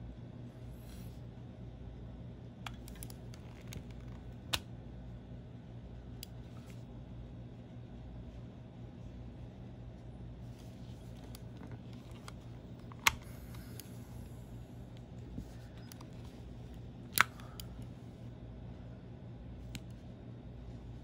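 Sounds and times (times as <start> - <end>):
sharp plastic clicks: 17.1 - 17.9.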